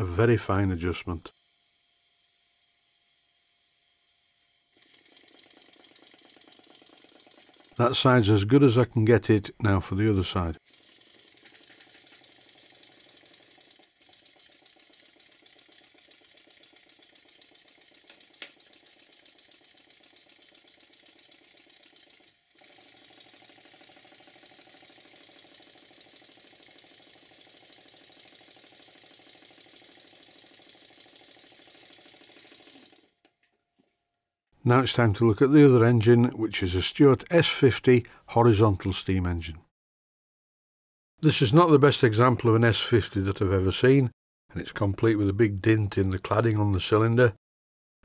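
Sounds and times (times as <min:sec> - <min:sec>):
model steam engine running: 0:00.8 - 0:08.5, 0:10.2 - 0:33.2.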